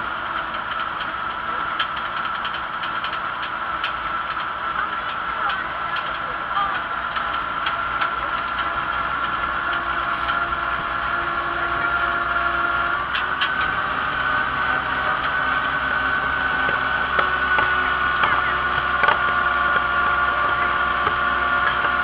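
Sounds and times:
tractor engine running: 0:00.0 - 0:22.0.

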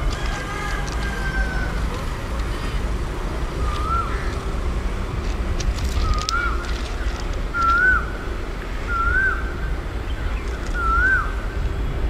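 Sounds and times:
bird whistled call: 0:03.6 - 0:04.3, 0:06.0 - 0:08.2, 0:08.8 - 0:11.4.

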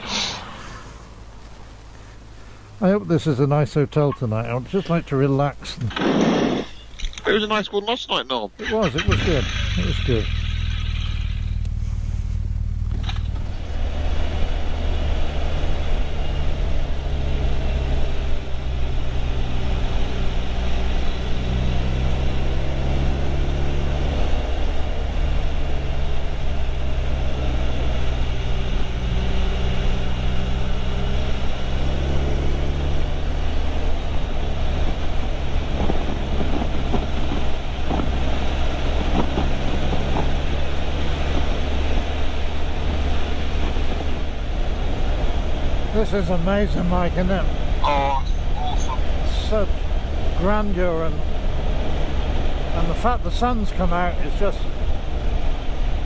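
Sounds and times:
motorcycle engine running: 0:08.8 - 0:19.1
wind noise rushing: 0:34.8 - 0:42.2.

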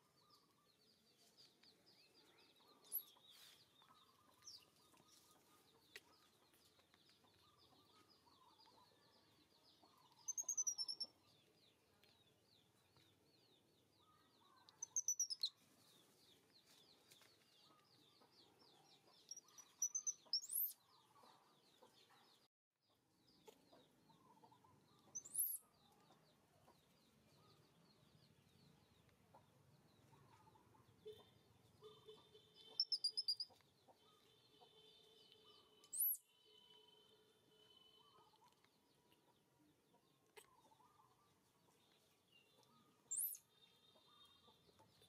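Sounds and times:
baby monkey squeaking: 0:10.3 - 0:11.1, 0:32.7 - 0:33.6, 0:43.1 - 0:43.4.

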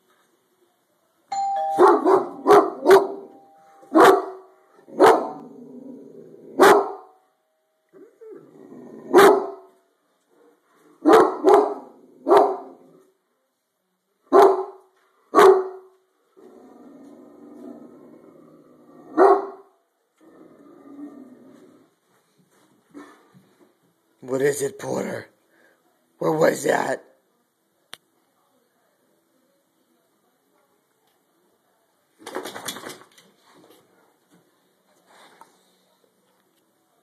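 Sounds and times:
two-tone doorbell chime: 0:01.3 - 0:04.0
dog barking loudly: 0:01.8 - 0:03.2, 0:03.9 - 0:05.4, 0:06.6 - 0:07.1, 0:09.1 - 0:09.7, 0:11.0 - 0:12.8, 0:14.3 - 0:14.8, 0:15.4 - 0:15.9, 0:19.2 - 0:19.7.

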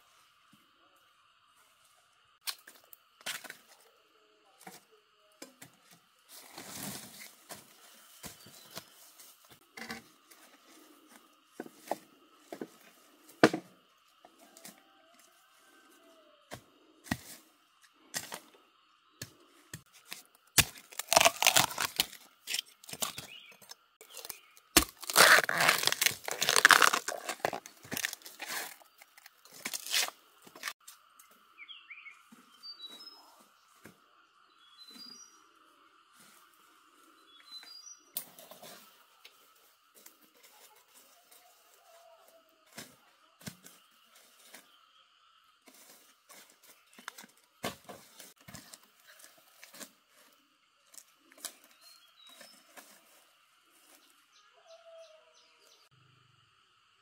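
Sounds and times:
plant material tearing and snapping: 0:20.5 - 0:23.2, 0:24.0 - 0:30.8.

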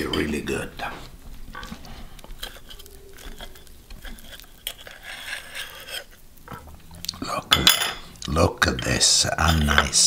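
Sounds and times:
knife scraping a plate: 0:01.6 - 0:06.2.

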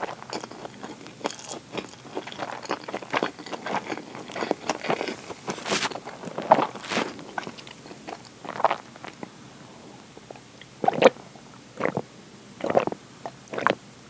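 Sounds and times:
chewing noises: 0:00.0 - 0:09.3, 0:12.6 - 0:13.8
gulps of a drink: 0:10.6 - 0:11.2, 0:11.8 - 0:13.8.

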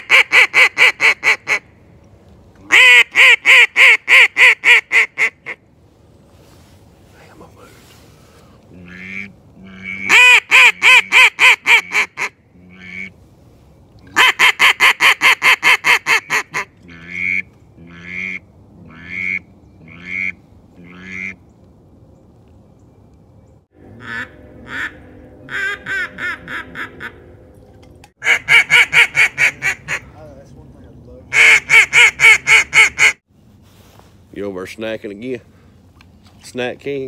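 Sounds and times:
duck call quacks: 0:00.0 - 0:01.6, 0:02.7 - 0:05.6, 0:08.8 - 0:13.1, 0:14.1 - 0:21.4, 0:24.0 - 0:27.2, 0:28.2 - 0:30.1, 0:31.3 - 0:33.2.

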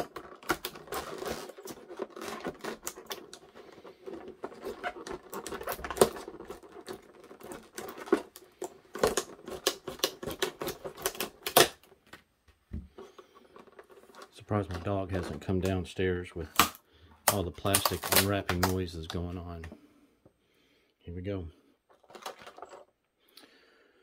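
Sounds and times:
shears cutting plastic: 0:00.0 - 0:11.8, 0:16.5 - 0:19.2
plastic snapping: 0:00.0 - 0:12.2, 0:16.5 - 0:19.8.

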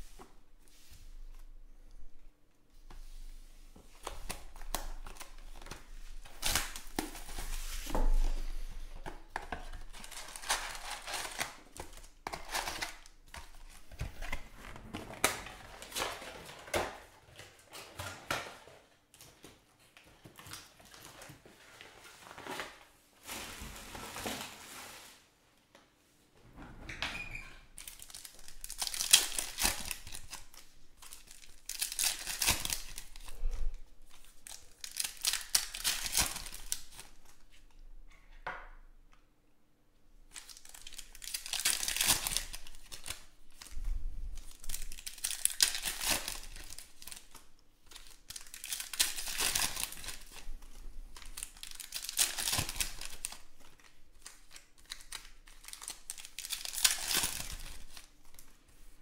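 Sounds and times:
foil wrappers tearing and crinkling: 0:04.0 - 0:08.4, 0:09.6 - 0:14.4, 0:27.8 - 0:33.4, 0:34.1 - 0:37.4, 0:40.3 - 0:43.7, 0:44.4 - 0:50.5, 0:51.1 - 0:58.4.

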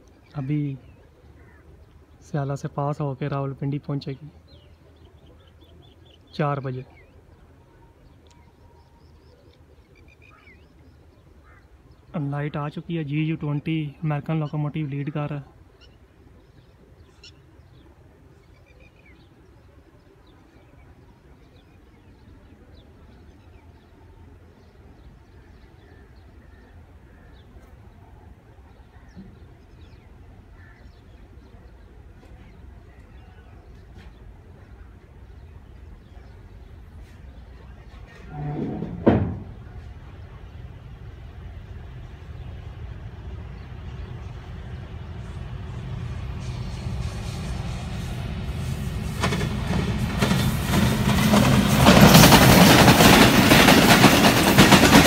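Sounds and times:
locomotive engine rumbling: 0:00.0 - 0:55.0
bird chirps: 0:04.3 - 0:12.2, 0:15.7 - 0:28.1
locomotive horn blast: 0:38.2 - 0:39.0.

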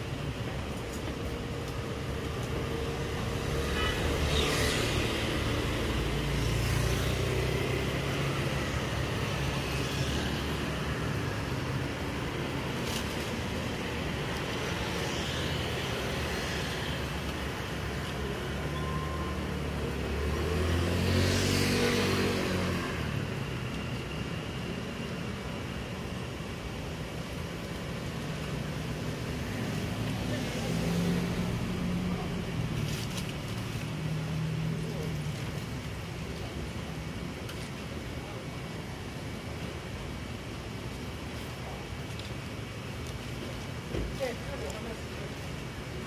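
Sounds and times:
street traffic passing: 0:00.0 - 0:46.0.

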